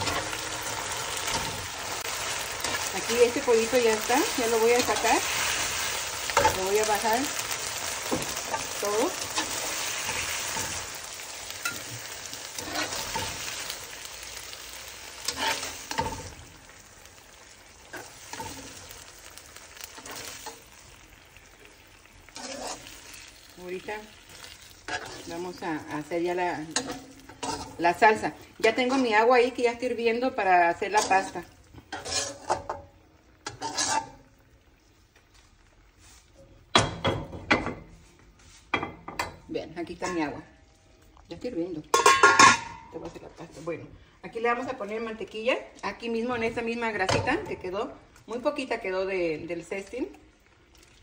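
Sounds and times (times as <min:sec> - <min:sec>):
metal spatula scraping a pan: 0:00.0 - 0:16.5, 0:17.8 - 0:20.9, 0:22.3 - 0:23.3, 0:24.3 - 0:29.6, 0:30.8 - 0:34.4, 0:41.9 - 0:43.8
chicken sizzling in a skillet: 0:00.0 - 0:39.4, 0:40.0 - 0:51.0
metal cookware clattering: 0:26.6 - 0:29.2, 0:30.8 - 0:34.2, 0:41.9 - 0:43.3.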